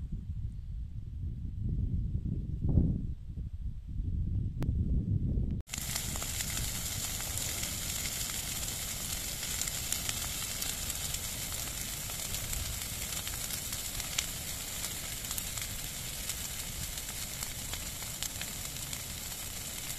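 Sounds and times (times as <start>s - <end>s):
low rumble: 0.0s - 8.6s
brush pile fire crackling: 5.7s - 19.9s.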